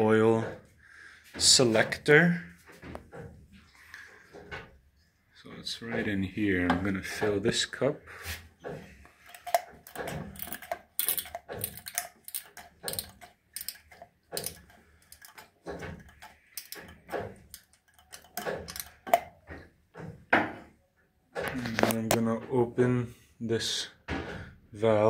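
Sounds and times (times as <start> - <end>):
hand pump metallic clicks: 8.6 - 20.1.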